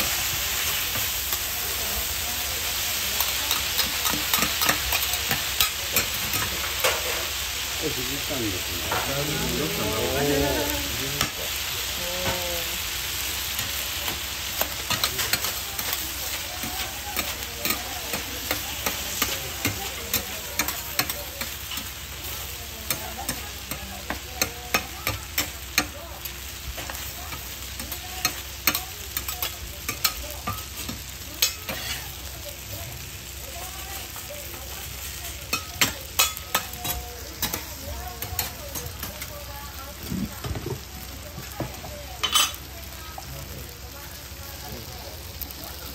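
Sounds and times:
food sizzling on a griddle: 0:00.0 - 0:45.9
metal spatulas clacking and scraping: 0:03.2 - 0:07.2, 0:16.6 - 0:21.9, 0:28.2 - 0:32.0, 0:35.5 - 0:37.6, 0:42.2 - 0:42.6.

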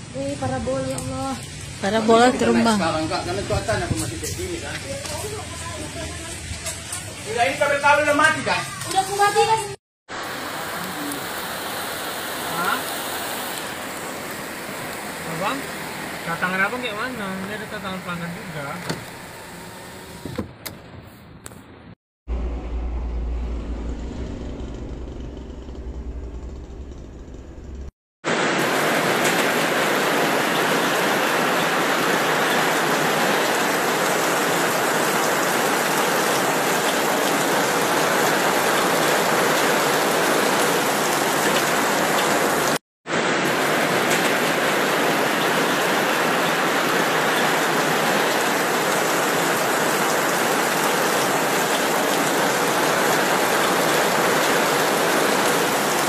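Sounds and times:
heavy rain on road: 0:00.0 - 0:06.4, 0:10.1 - 0:20.0, 0:28.3 - 0:56.0.

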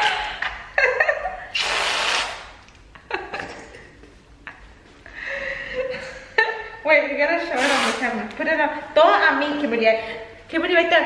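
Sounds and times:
women laughing: 0:00.0 - 0:01.5, 0:03.0 - 0:03.8
loud breathy hiss: 0:01.5 - 0:02.5.

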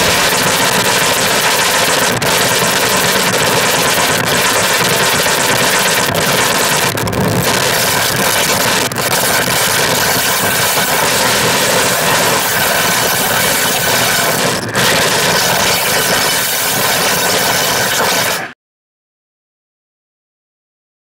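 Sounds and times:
distorted electronic noise: 0:00.0 - 0:18.5.

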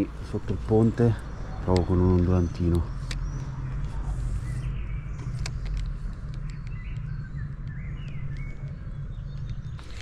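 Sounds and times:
low outdoor rumble: 0:00.0 - 0:10.0
small birds chirping: 0:00.0 - 0:10.0
light clicks: 0:01.6 - 0:04.0, 0:05.2 - 0:10.0.

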